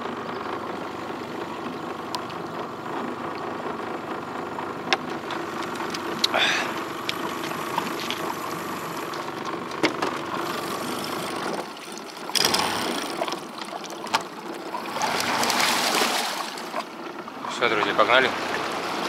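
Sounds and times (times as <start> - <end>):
outboard motor: 0.0 - 19.0
water rushing and splashing: 4.8 - 19.0.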